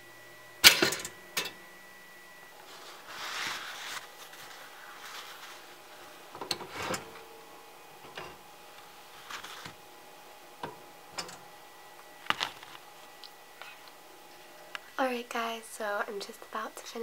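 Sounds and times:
paper towel rustling: 2.5 - 7.6, 8.3 - 10.0, 12.2 - 14.6.

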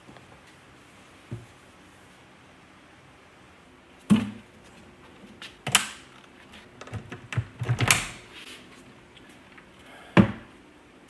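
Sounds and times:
knocks and clunks of handling: 5.7 - 8.2.

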